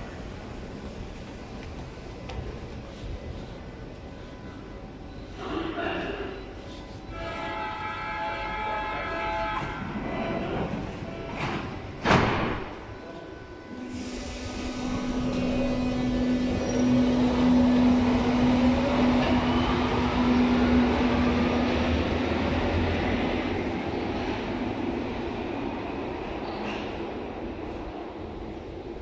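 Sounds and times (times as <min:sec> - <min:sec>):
train doors banging shut: 0:10.6 - 0:12.9.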